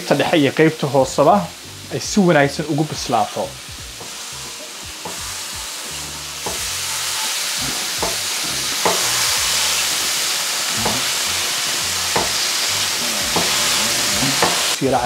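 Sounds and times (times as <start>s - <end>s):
chicken sizzling in a pan: 0.0s - 15.0s
spatula scraping and tapping pan: 4.0s - 10.2s, 12.1s - 14.8s.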